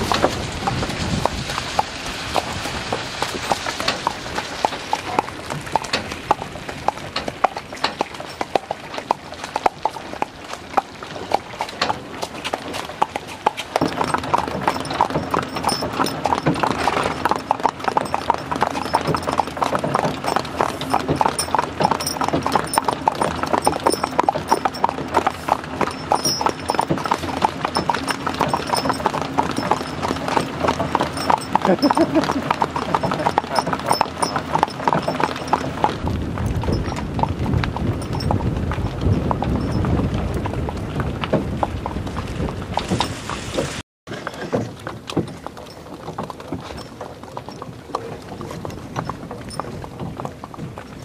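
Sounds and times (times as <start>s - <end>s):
hooves clip-clopping on asphalt: 0.0s - 51.0s.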